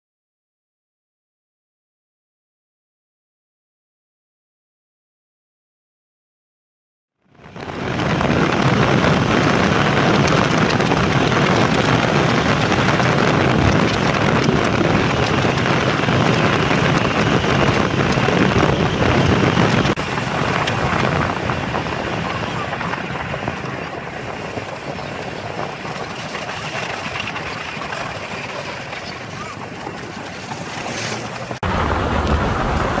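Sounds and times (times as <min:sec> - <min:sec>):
car road noise on wet road: 0:07.4 - 0:33.0
wind buffeting microphone: 0:07.4 - 0:33.0.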